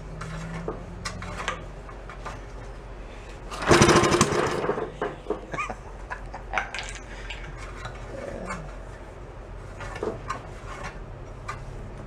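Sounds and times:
engine running: 0:00.0 - 0:06.1.

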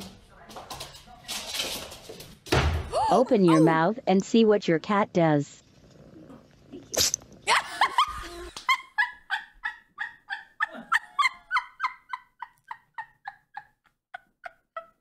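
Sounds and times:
woman laughing: 0:07.5 - 0:15.0.

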